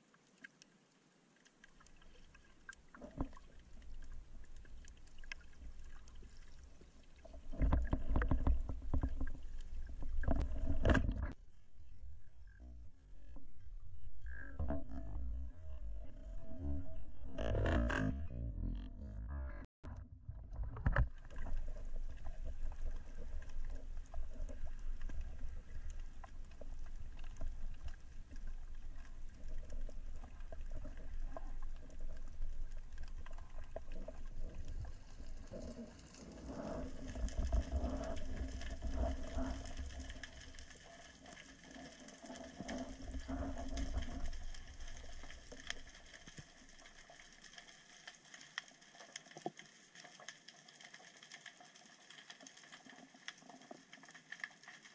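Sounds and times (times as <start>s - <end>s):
faint crackle of clicks: 0.0s - 11.4s, 19.8s - 54.9s
underwater rumble of water: 1.5s - 54.9s
low hum: 8.3s - 35.6s.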